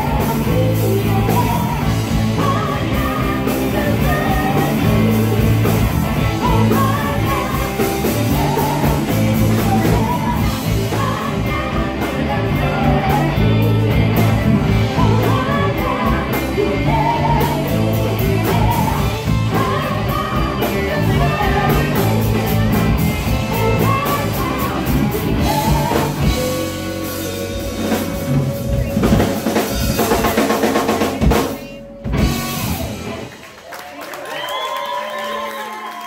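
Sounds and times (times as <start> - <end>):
women singing: 0.0 - 27.9
bass guitar: 0.0 - 33.7
drum kit: 0.0 - 33.7
electric guitars: 0.0 - 33.9.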